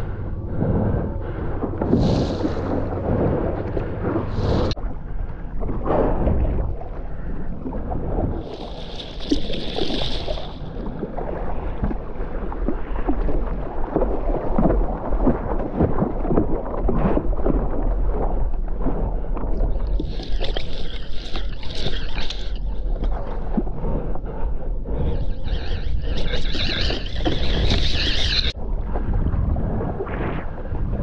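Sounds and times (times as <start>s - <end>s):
water splashing against paddleboard: 8.4s - 23.7s
wind buffeting microphone: 22.9s - 31.0s.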